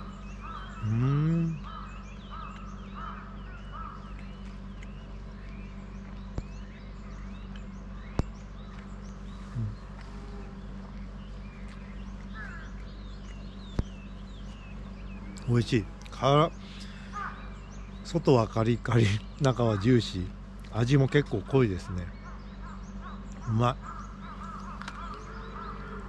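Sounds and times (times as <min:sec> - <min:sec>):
small birds chirping: 0:00.0 - 0:26.0
steady low hum: 0:00.0 - 0:26.0
man humming while chewing: 0:00.8 - 0:01.7, 0:09.4 - 0:11.0.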